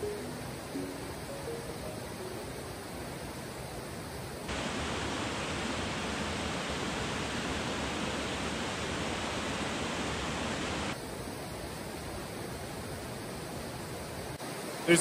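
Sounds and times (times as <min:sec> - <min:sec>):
waterfall rushing into a pool: 0:04.5 - 0:11.0.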